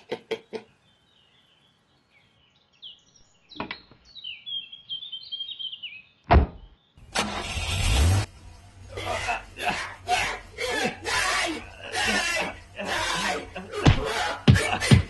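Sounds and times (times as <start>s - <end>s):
birds chirping: 0.3s - 7.3s, 8.2s - 14.8s
dull thunk: 6.3s - 6.7s
loud noise: 7.1s - 15.0s.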